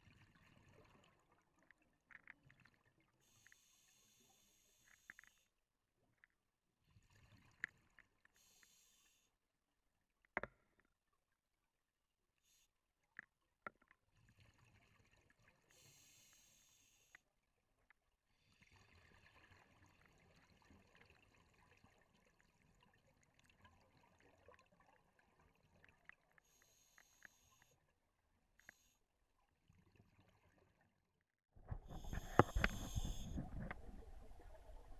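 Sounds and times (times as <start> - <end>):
bubbling of exhaled air: 31.6 - 34.9
diver breathing through regulator: 31.8 - 33.8.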